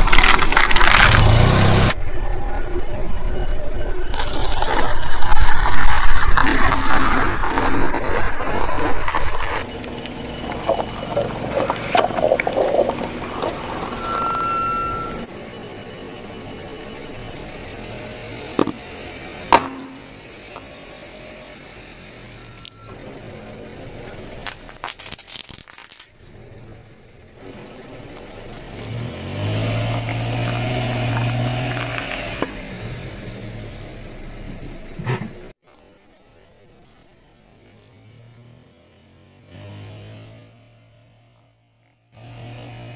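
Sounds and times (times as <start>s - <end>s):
tyre popping small objects: 0.0s - 1.6s, 4.1s - 14.1s, 18.6s - 18.8s, 24.4s - 26.2s, 29.8s - 32.6s
sharp crack: 0.0s - 2.0s, 4.1s - 14.0s, 19.5s - 20.7s, 24.4s - 26.3s
crackling under tyre: 0.0s - 2.1s, 3.7s - 15.3s, 16.4s - 38.7s
car engine humming: 2.8s - 42.9s.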